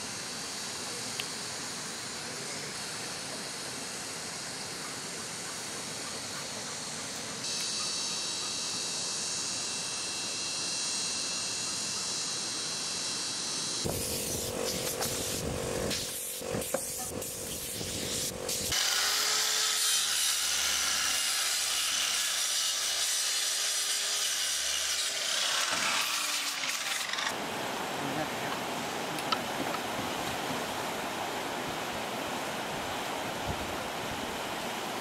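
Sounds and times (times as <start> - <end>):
tools sawing wood: 18.7 - 27.4.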